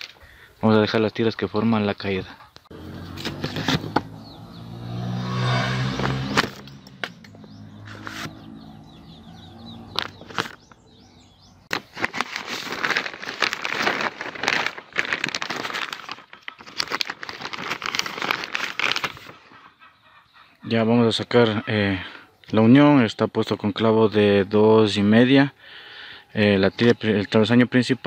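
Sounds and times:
plastic sheeting crinkling: 11.7s - 19.4s.

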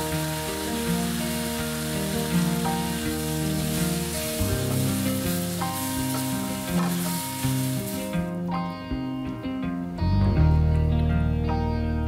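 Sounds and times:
food sizzling in a frying pan: 0.0s - 8.5s
background music with held notes: 0.0s - 12.0s.

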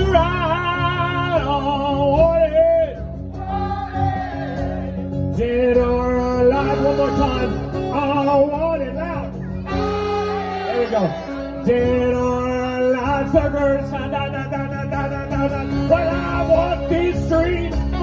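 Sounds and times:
strummed acoustic guitar: 0.0s - 18.0s
saxophone solo: 9.6s - 11.7s.

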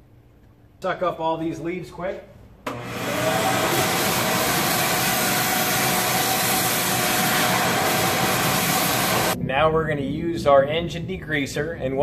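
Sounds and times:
vacuum running: 2.6s - 9.4s.

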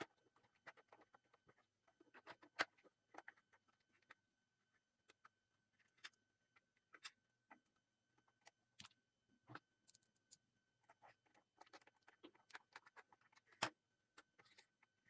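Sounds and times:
plastic parts clicking and tapping: 8.4s - 10.4s.

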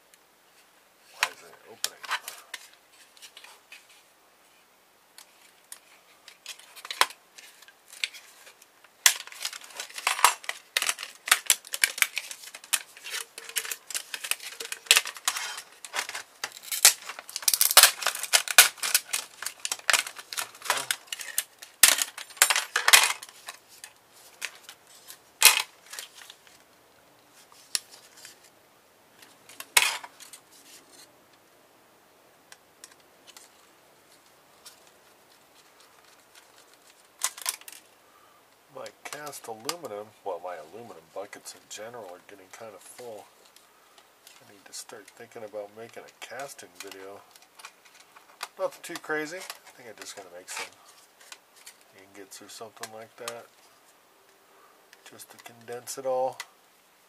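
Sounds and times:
optical drive parts clicking and clattering: 5.7s - 23.6s.

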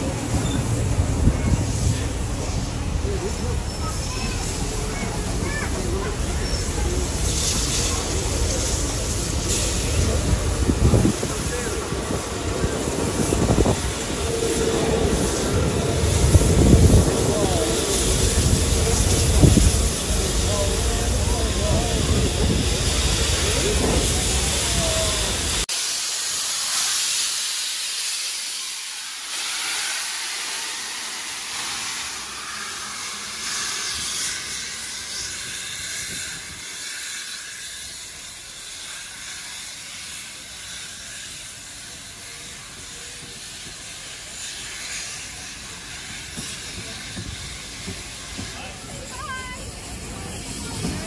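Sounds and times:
steam locomotive hissing: 0.0s - 51.0s
train carriages rolling past: 0.0s - 51.0s.

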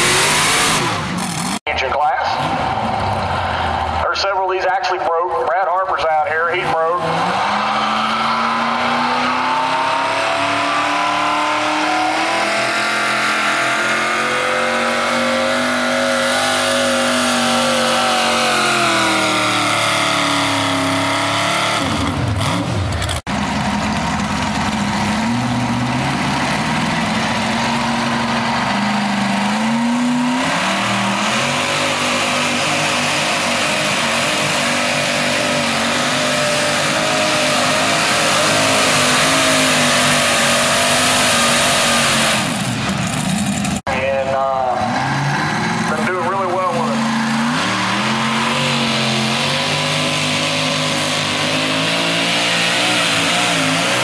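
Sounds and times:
tractor engine revving under load: 0.0s - 4.8s, 6.0s - 54.0s.

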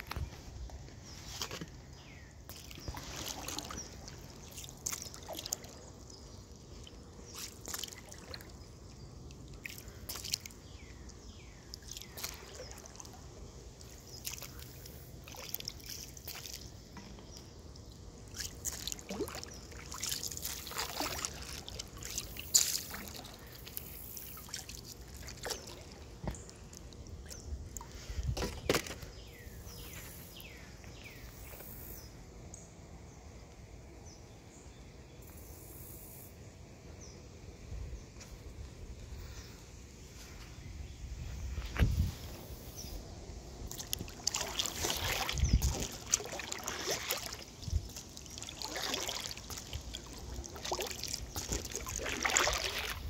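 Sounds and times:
paddle splashing in river: 1.1s - 31.7s, 43.6s - 53.0s
water trickling drips: 2.5s - 27.9s, 43.7s - 53.0s.

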